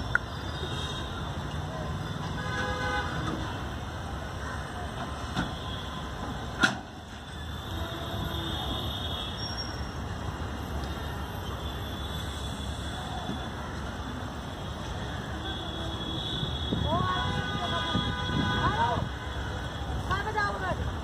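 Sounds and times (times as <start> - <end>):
train horn toot: 7.7 - 9.1.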